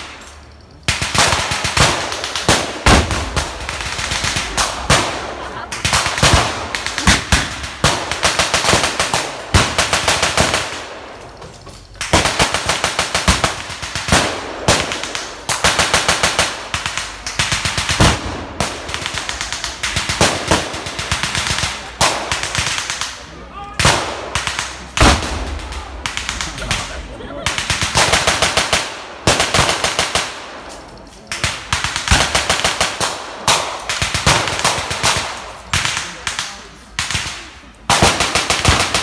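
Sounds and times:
blank gunfire bursts: 0.9 - 11.2, 37.0 - 39.0.

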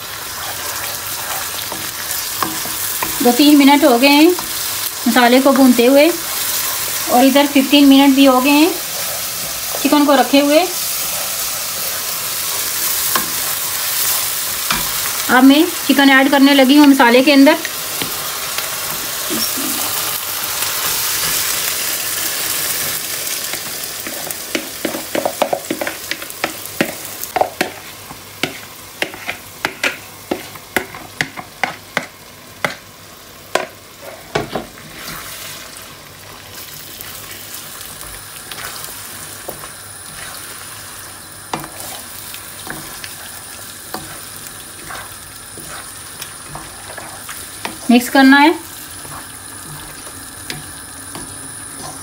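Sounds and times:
chicken sizzling in hot oil: 0.0 - 52.0.

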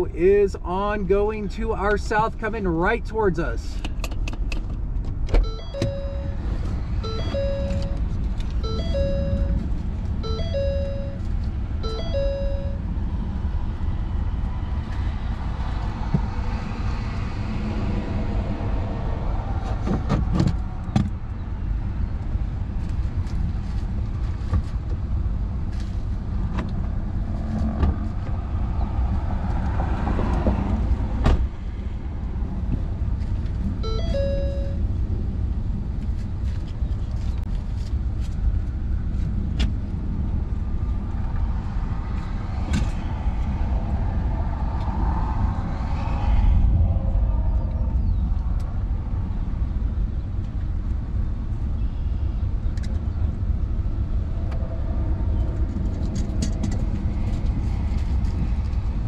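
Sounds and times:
vehicle cabin rumble: 0.0 - 59.0
short electronic beeps: 5.4 - 8.0, 8.6 - 12.8, 33.8 - 34.8.

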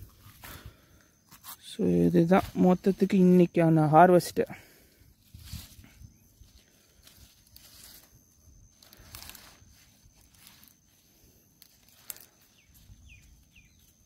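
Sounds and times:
rustling and crackling of vegetables: 5.1 - 14.0.

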